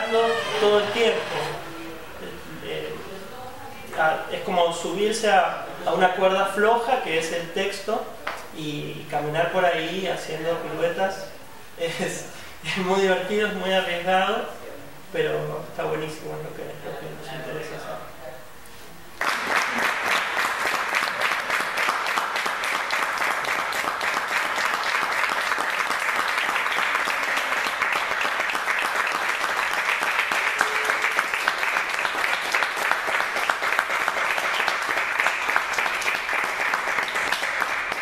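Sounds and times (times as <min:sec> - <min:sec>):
audience applauding: 0:00.0 - 0:02.0, 0:19.2 - 0:38.0.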